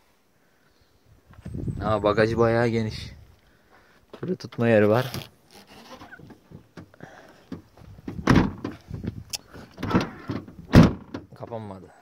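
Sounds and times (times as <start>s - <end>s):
tailgate heavy thud: 8.0s - 9.2s, 9.8s - 11.3s.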